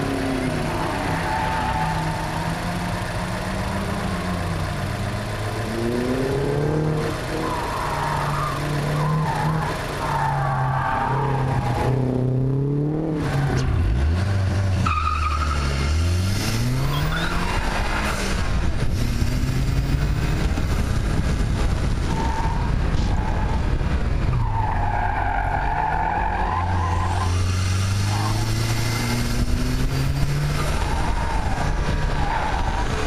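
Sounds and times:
car engine revving: 0:00.0 - 0:33.0.

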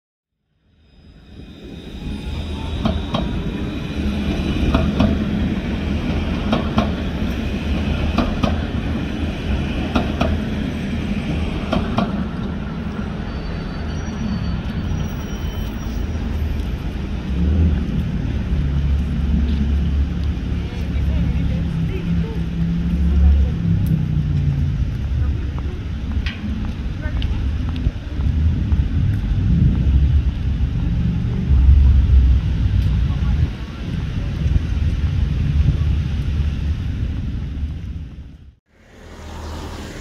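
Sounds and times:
tram rumbling on rails: 0:00.6 - 0:40.0
tram wheels clicking: 0:01.6 - 0:13.4, 0:15.5 - 0:38.4.

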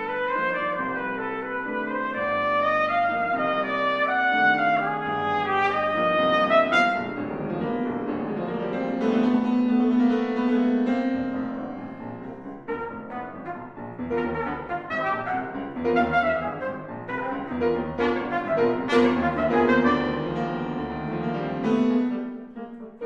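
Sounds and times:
trumpet melody: 0:00.0 - 0:07.6, 0:12.6 - 0:23.0
piano chords: 0:00.0 - 0:23.0.

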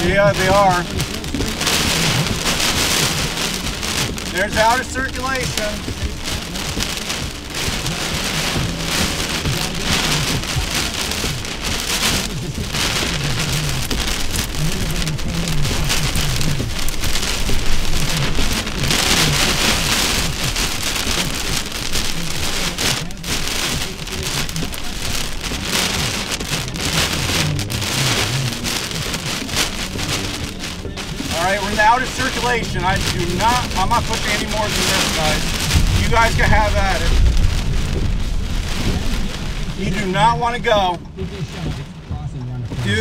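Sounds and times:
heavy rain pelting down: 0:00.0 - 0:43.0.

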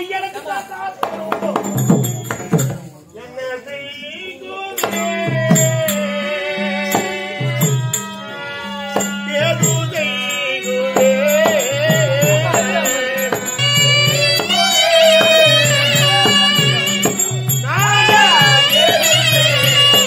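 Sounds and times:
steady repeating drum pattern: 0:01.0 - 0:02.9, 0:09.0 - 0:20.0
wavering melody line: 0:12.0 - 0:20.0.

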